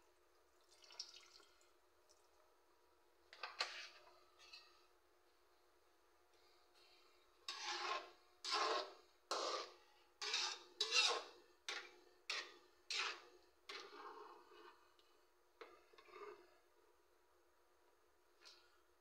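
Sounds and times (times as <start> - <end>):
metal ladle scraping wok: 7.4 - 14.9.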